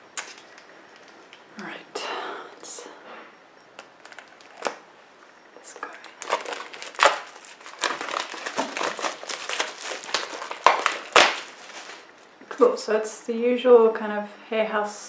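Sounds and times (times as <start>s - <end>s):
plastic shrink-wrap crinkling: 3.8s - 4.9s, 5.7s - 12.3s.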